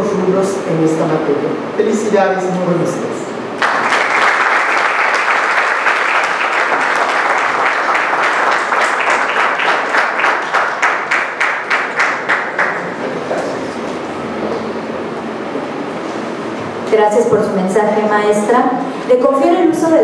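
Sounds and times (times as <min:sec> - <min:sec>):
audience applauding: 0:03.6 - 0:13.3.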